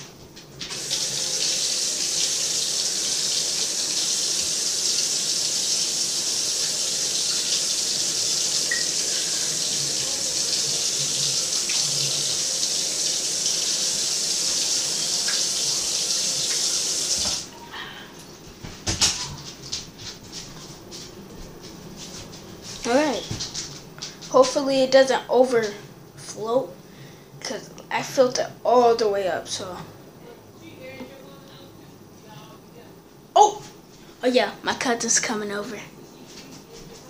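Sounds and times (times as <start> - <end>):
tap water running: 0.0 - 17.5.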